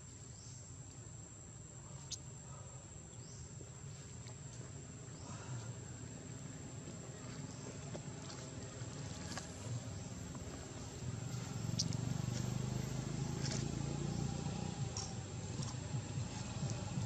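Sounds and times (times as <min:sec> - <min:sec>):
engine running: 0:04.6 - 0:17.0.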